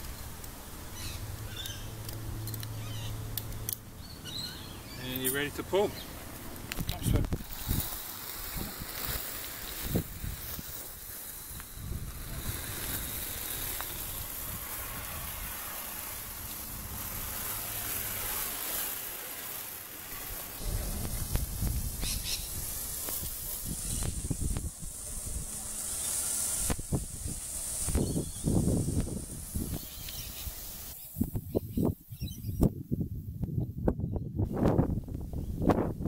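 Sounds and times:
metal chain scraping on paving: 4.9 - 6.0, 7.0 - 20.8
low thumps and rumbles: 20.6 - 23.4.

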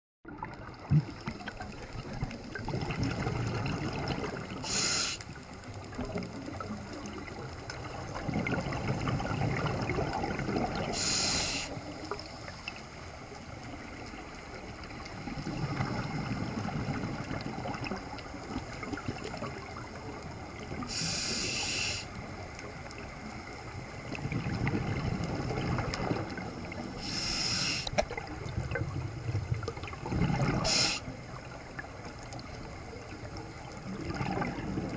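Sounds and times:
exhaled air bubbling: 0.2 - 34.9
regulator inhalation hiss: 4.6 - 5.3, 10.9 - 11.8, 20.9 - 22.2, 27.0 - 28.0, 30.6 - 31.1.

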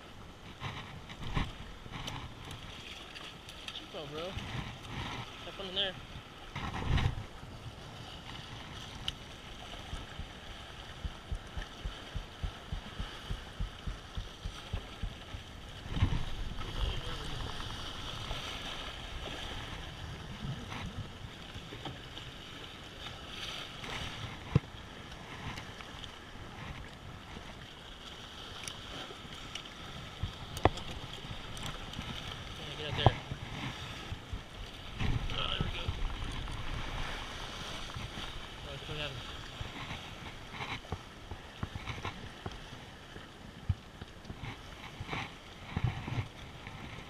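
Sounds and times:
waves washing against rocks: 0.0 - 47.0
wind buffeting microphone: 4.2 - 22.1, 29.2 - 47.0
soft regular thumps: 9.8 - 18.0.

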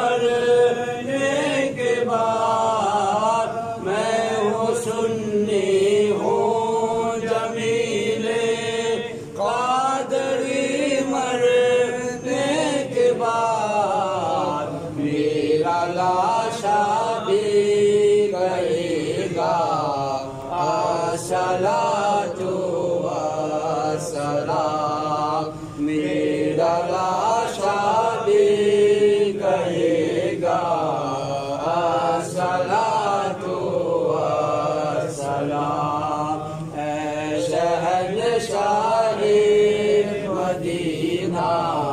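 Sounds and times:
man chanting through loudspeakers: 0.0 - 41.9.

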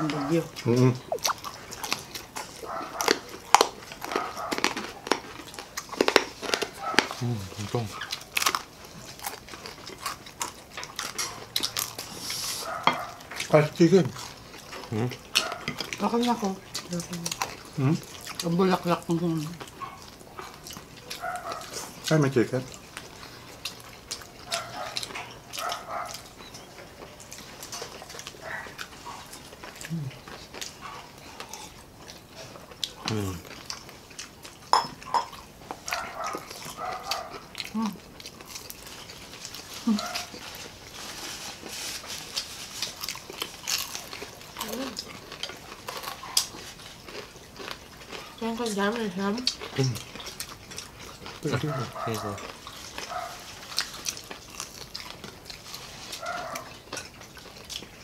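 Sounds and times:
crunching crispy fried food: 0.0 - 58.0
wet lip-smacking: 0.6 - 2.5.

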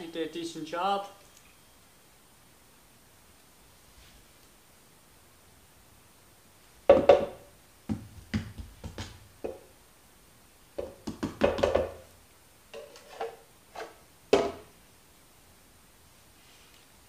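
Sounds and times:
plastic bin tapped on floor: 6.9 - 9.6, 10.8 - 12.0.

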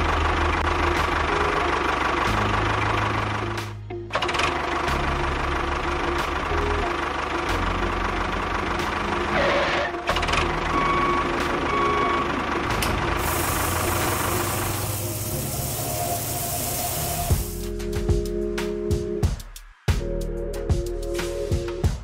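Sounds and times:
tractor engine throbbing: 0.0 - 17.8
sand pouring hiss: 13.2 - 17.7.

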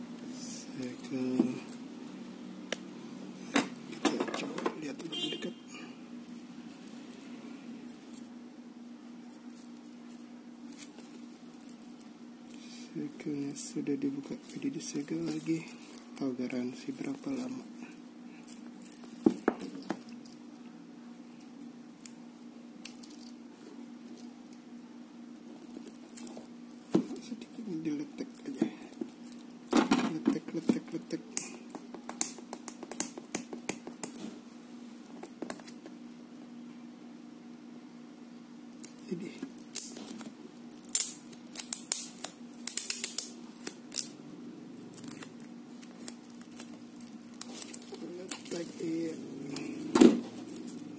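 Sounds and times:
steady low hum: 0.0 - 50.9
plastic wrap crinkling: 44.9 - 50.8.

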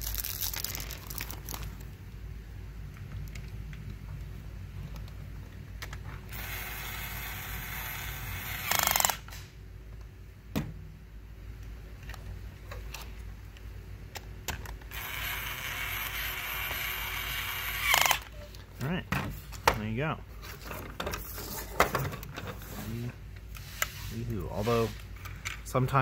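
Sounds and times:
toy drill whirring: 6.3 - 9.3, 14.9 - 18.3.

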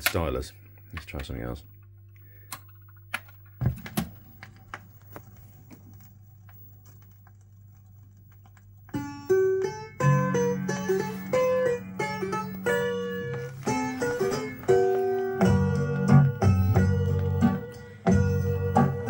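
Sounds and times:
record changer clicking and clunking: 2.5 - 5.2
plucked-string music from speakers: 8.9 - 19.0.

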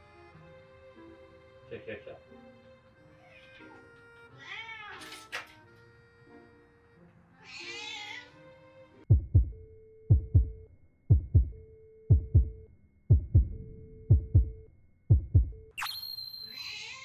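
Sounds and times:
background music held tone: 0.0 - 16.5
kitten meow: 4.3 - 5.2, 7.4 - 8.3, 16.5 - 17.0
heartbeat thuds: 9.1 - 15.8.

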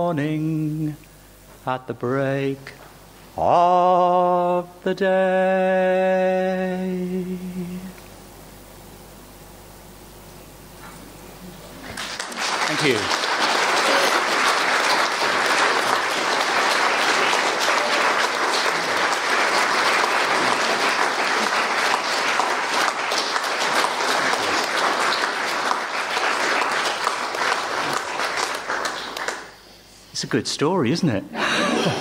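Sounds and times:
audience applauding: 11.8 - 29.6.

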